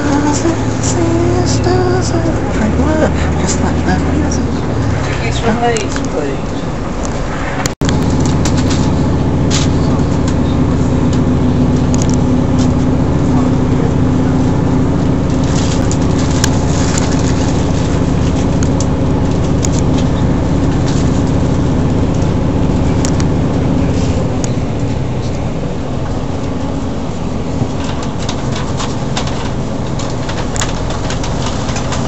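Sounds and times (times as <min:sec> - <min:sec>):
train cabin rumble: 0:00.0 - 0:32.0
wheel clicks and rattles: 0:15.0 - 0:26.7, 0:27.5 - 0:32.0.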